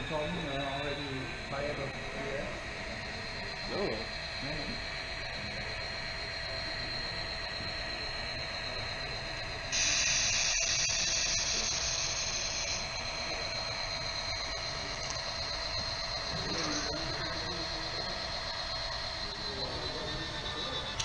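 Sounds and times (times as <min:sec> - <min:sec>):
electronic hum with high tones: 0:00.0 - 0:21.0
loud hiss: 0:09.7 - 0:13.4.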